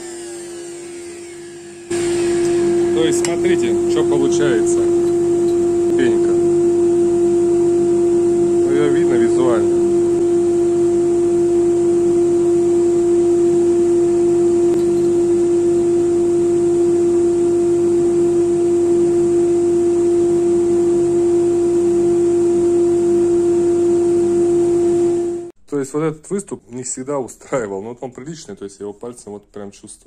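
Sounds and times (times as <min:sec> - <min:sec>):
thickness planer idling hum: 0:00.0 - 0:05.7.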